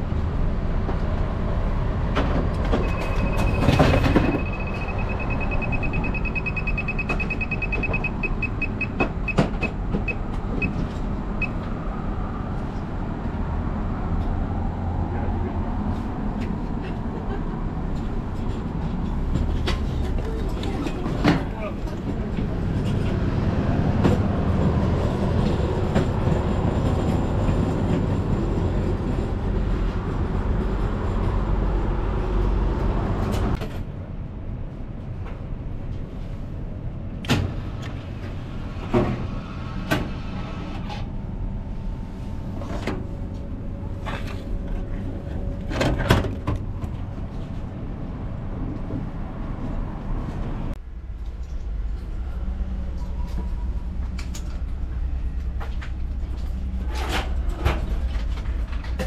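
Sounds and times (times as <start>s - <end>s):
loud steady rumble: 49.8s - 59.0s.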